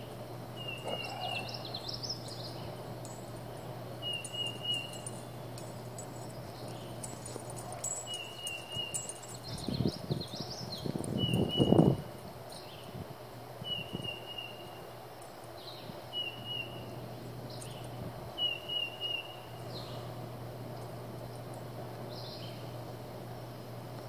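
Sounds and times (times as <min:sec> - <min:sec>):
birds whistling: 0:00.6 - 0:03.2, 0:03.9 - 0:12.0, 0:13.6 - 0:14.9, 0:15.7 - 0:20.1.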